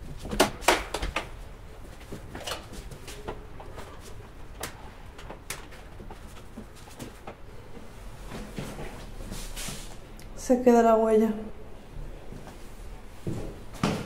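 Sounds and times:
doormat rustling on marble floor: 1.3 - 10.0.

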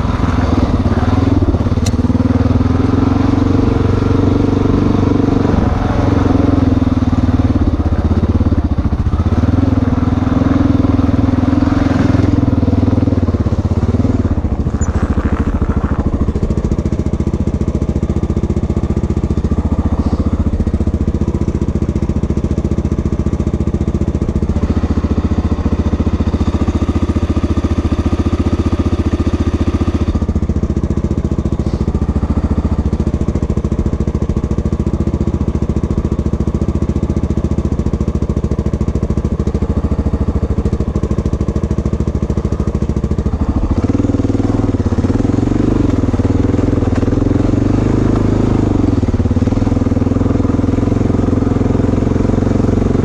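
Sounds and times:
dirt bike engine running: 0.0 - 53.0.

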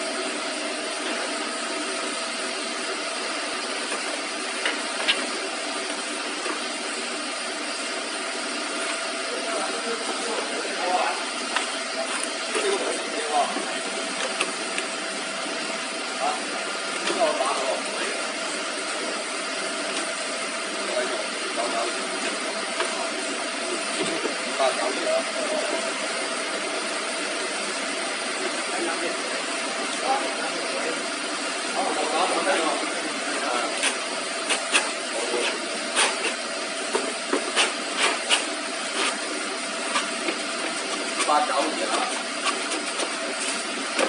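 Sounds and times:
machine motor running: 0.0 - 44.0
sanding belt tapping and scraping: 33.8 - 39.2, 39.9 - 44.0.

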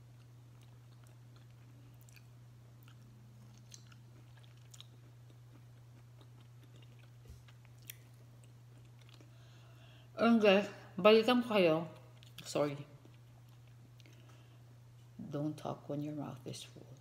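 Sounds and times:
person chewing: 0.0 - 9.7, 12.0 - 15.1
steady low hum: 0.0 - 17.0.

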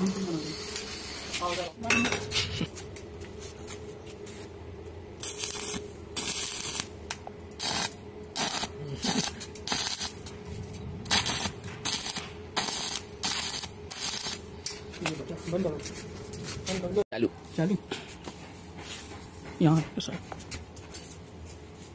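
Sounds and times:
welding arc hissing: 0.0 - 1.8, 5.2 - 10.4, 11.0 - 14.6
steady hum: 0.0 - 21.9.

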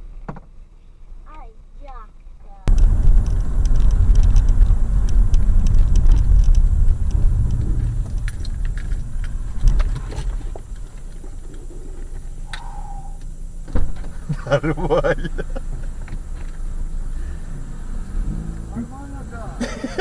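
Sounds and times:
car road and engine rumble: 0.0 - 20.0
small ticks and rattles: 2.7 - 14.4.

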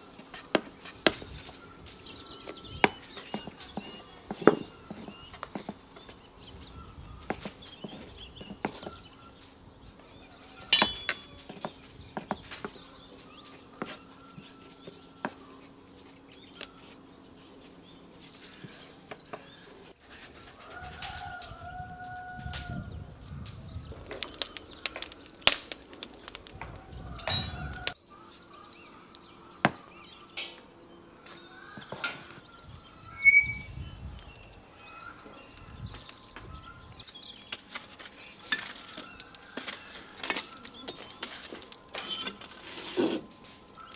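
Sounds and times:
birds chirping: 0.0 - 43.9.

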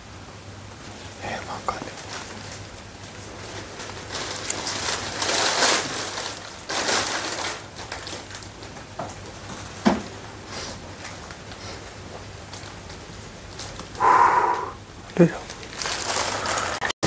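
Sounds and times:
plastic bag crinkling: 1.9 - 8.8, 15.2 - 17.0.

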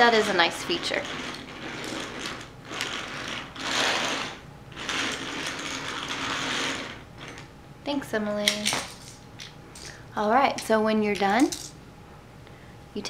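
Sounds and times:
toy train wheels rolling on track: 0.2 - 7.0.

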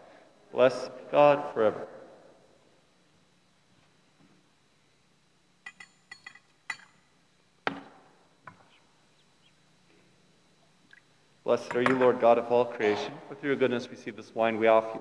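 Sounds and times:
altar vessels clinking: 5.6 - 7.1.

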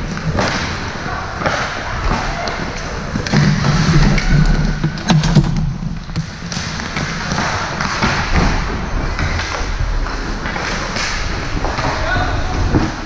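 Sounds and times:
noisy hall din: 0.0 - 13.0
thuds and sharp knocks: 3.2 - 9.6.

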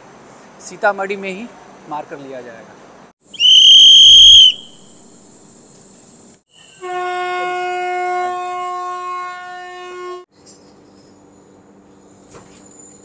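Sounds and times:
train horn blast: 6.8 - 10.2.

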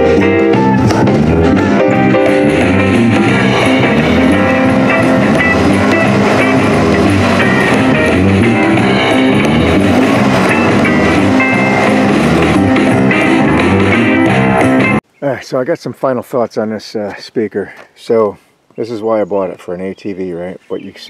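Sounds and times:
guitar music through a speaker: 0.0 - 15.0.

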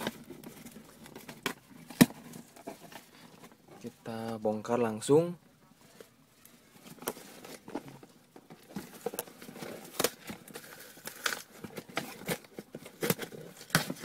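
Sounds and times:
packing tape scratching and tearing: 8.6 - 14.0.

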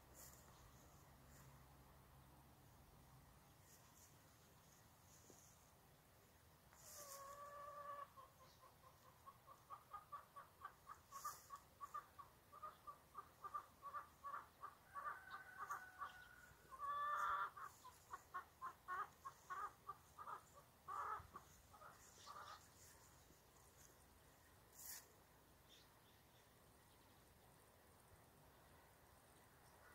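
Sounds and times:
chicken clucking and calling: 6.7 - 24.0.

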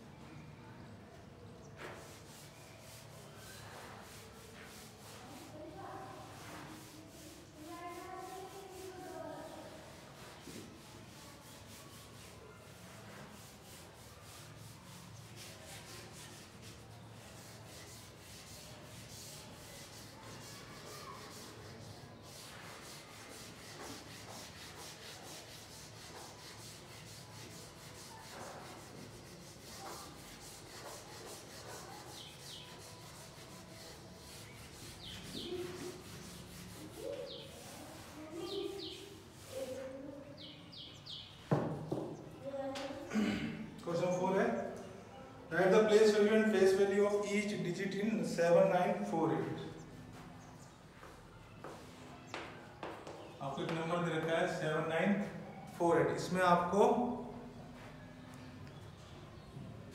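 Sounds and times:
duster wiping blackboard: 1.8 - 41.0.

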